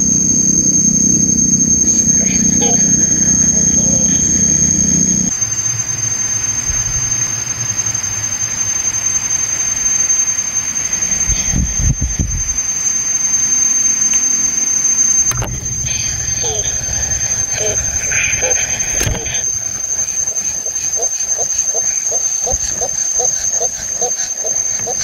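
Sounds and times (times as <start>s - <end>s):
high-pitched whine: 0.0s - 25.0s.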